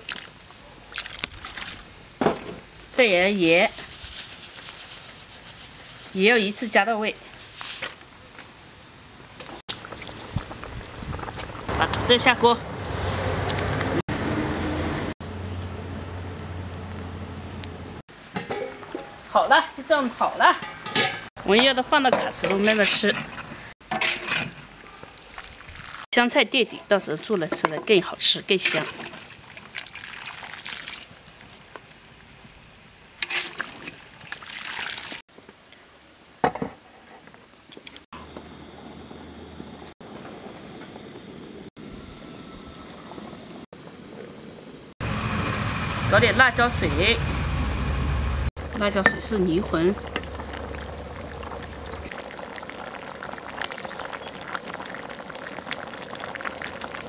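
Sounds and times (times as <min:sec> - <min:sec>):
splash: 0:00.0 - 0:01.9, 0:24.0 - 0:26.1, 0:28.6 - 0:31.4, 0:33.2 - 0:35.2
pot simmering with bubbling: 0:09.3 - 0:14.5, 0:48.4 - 0:57.0.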